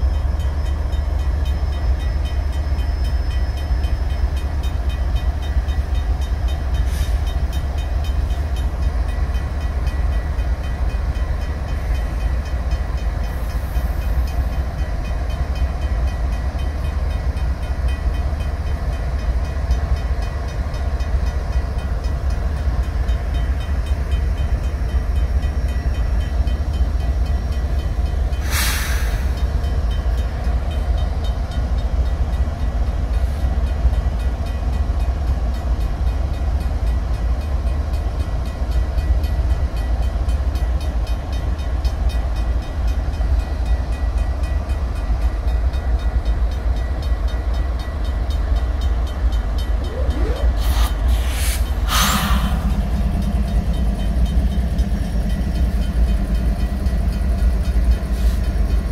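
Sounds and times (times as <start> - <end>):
diesel locomotive rumble: 0.0 - 58.9
air hiss bursts: 28.4 - 29.3, 50.5 - 52.8
crossing bell ringing: 33.9 - 50.7, 51.8 - 58.9.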